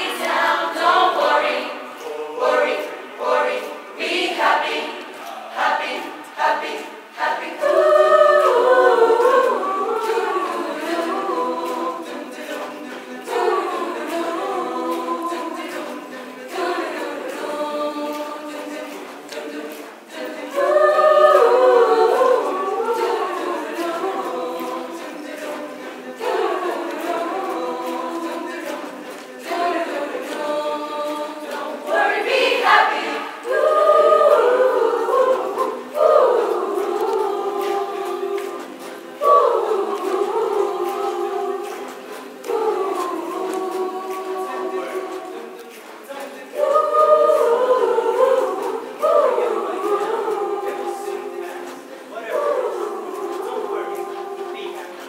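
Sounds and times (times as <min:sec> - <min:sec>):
choir singing in harmony: 0:00.0 - 0:55.0.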